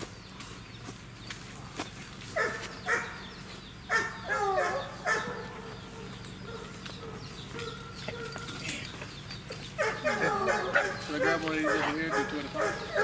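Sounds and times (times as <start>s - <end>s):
dog barking: 2.4s - 3.2s, 3.9s - 8.5s, 9.8s - 13.0s.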